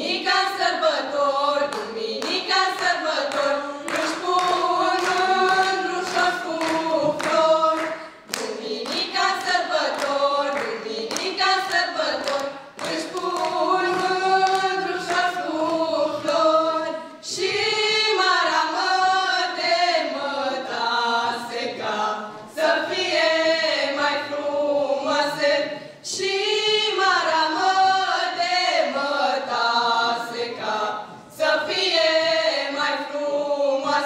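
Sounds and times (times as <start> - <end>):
women singing a cappella in harmony: 0.0 - 34.0
audience clapping along: 1.6 - 16.8.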